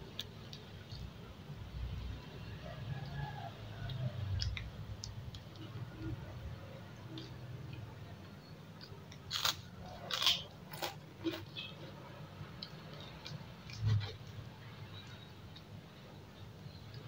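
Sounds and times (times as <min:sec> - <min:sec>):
chewing food: 0:02.7 - 0:16.1
crisp crunches: 0:09.2 - 0:11.5.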